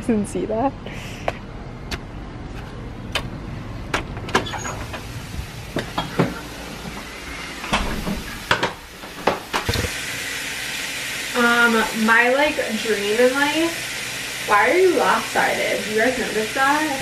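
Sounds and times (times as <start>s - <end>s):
door opening and closing: 3.9s - 5.1s, 7.6s - 10.0s
handheld camera bumps: 9.6s - 9.9s.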